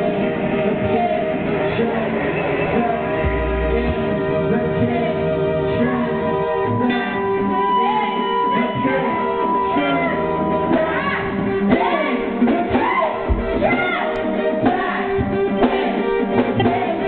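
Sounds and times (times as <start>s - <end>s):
guitar: 0.0s - 17.0s
person singing: 0.0s - 17.0s
sustained electronic tones: 2.3s - 12.5s.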